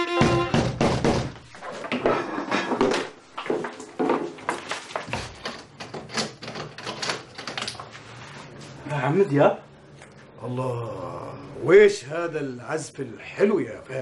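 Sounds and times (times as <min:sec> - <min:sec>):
violin note: 0:00.0 - 0:00.8
knocking on glass door: 0:00.2 - 0:01.4.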